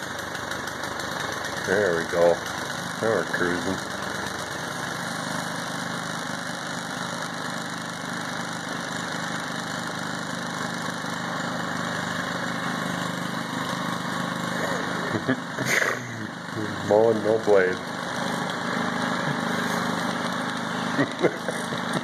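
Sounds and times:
lawn mower engine running: 0:00.0 - 0:22.0.

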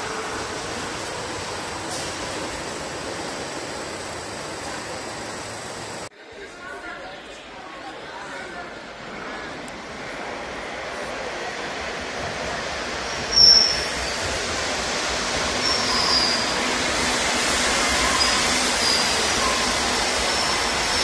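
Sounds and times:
train arriving underground: 0:00.0 - 0:21.0
train wheels squealing: 0:13.2 - 0:14.4, 0:15.5 - 0:16.9, 0:17.5 - 0:21.0.

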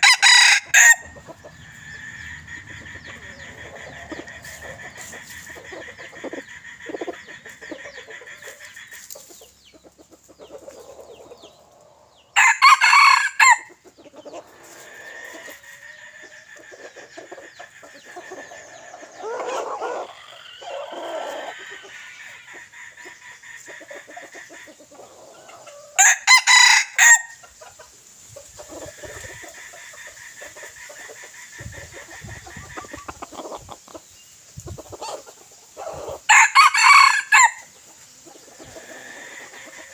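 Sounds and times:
rooster crowing: 0:00.0 - 0:04.0, 0:12.4 - 0:13.7, 0:26.0 - 0:27.4, 0:36.3 - 0:37.7
chickens calling softly: 0:00.0 - 0:39.9.

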